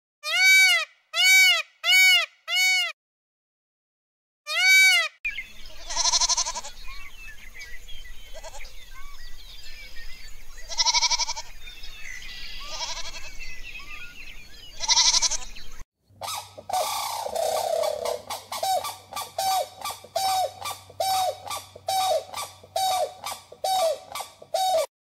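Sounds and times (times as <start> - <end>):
goats bleating: 5.8 - 6.7, 12.7 - 13.4, 14.8 - 15.6.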